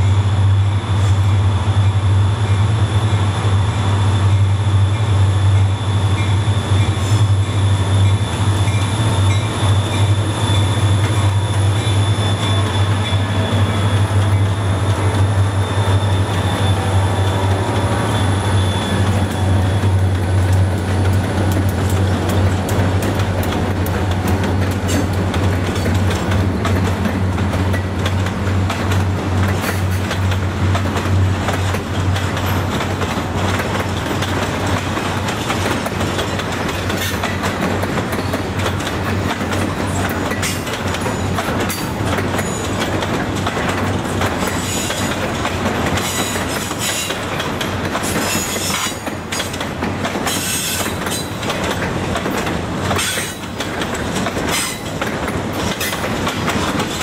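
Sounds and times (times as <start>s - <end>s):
freight train wheels rumbling: 0.0s - 57.0s
high-pitched wheel squeal: 15.4s - 19.9s
wheels clicking over rail joints: 19.0s - 57.0s.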